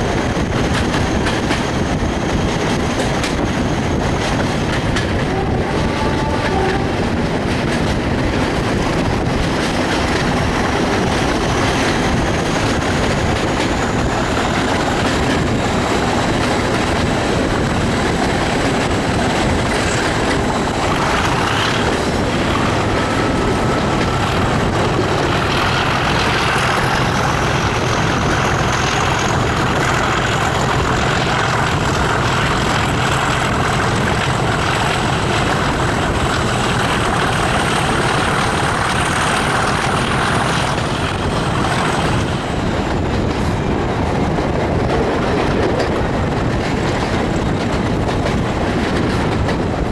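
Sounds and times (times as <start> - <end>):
diesel locomotive engines thrashing: 0.0 - 49.9
wheel and rail noise: 0.0 - 49.9.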